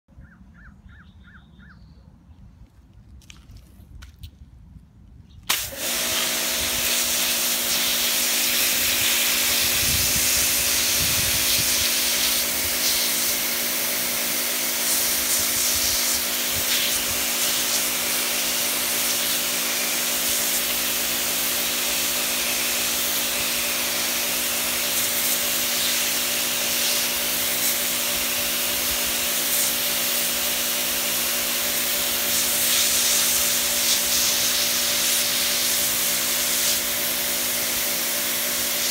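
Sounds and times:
pressure washer motor hum: 0:05.5 - 0:38.9
water jet hissing on paving: 0:05.5 - 0:38.9.

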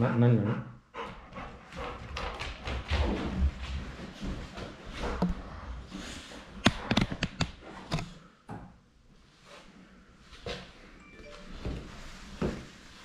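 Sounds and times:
dog paws on wooden floor: 0:01.0 - 0:06.6.

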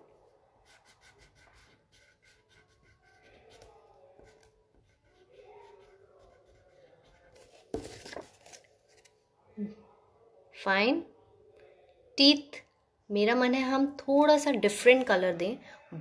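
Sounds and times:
pencil scratching on paper: 0:00.0 - 0:09.1.

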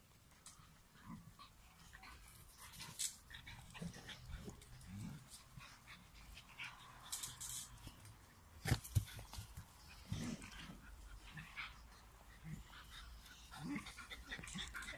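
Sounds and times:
dog grunts: 0:09.9 - 0:14.9.

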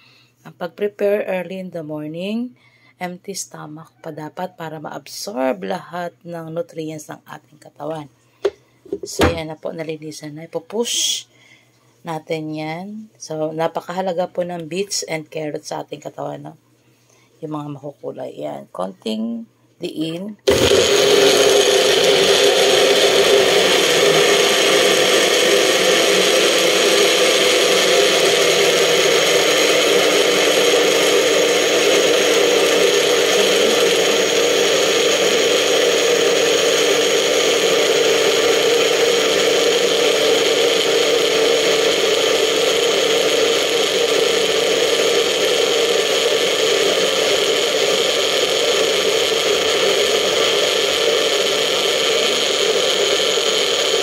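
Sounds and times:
blender motor grinding vegetables: 0:20.5 - 0:54.0.

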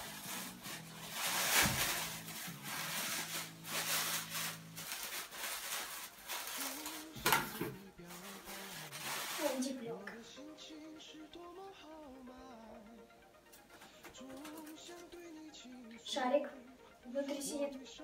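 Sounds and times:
plastic packaging crinkling: 0:00.0 - 0:09.6.

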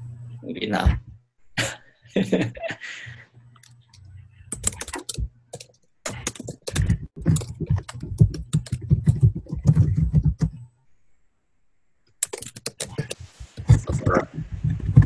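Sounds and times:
rapid keyboard typing: 0:04.5 - 0:10.7, 0:12.2 - 0:15.0.

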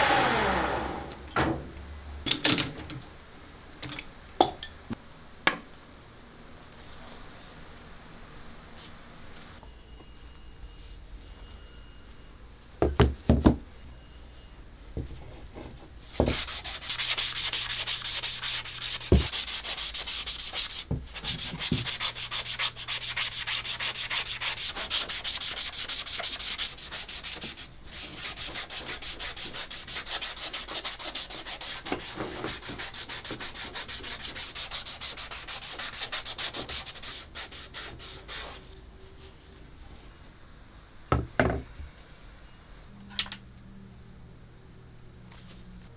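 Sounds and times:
hand sanding wood: 0:16.2 - 0:38.6.

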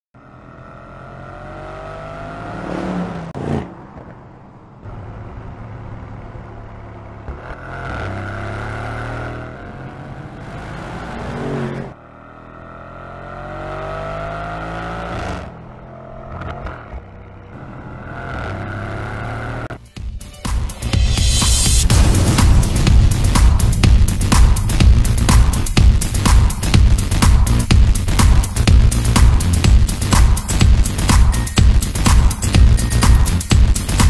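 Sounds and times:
car engine accelerating hard: 0:00.2 - 0:03.9, 0:04.8 - 0:19.7, 0:21.3 - 0:34.0
sharp exhaust cracks: 0:21.8 - 0:34.0.

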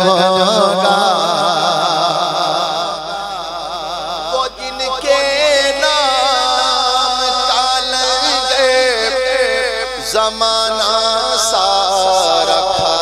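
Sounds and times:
man singing with vibrato: 0:00.0 - 0:13.0.

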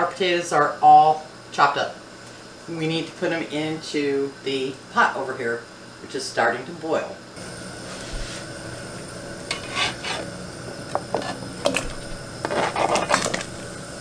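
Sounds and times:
boiling water hiss: 0:00.0 - 0:14.0
metal scraper on cutting board: 0:09.5 - 0:10.3, 0:12.4 - 0:13.4.

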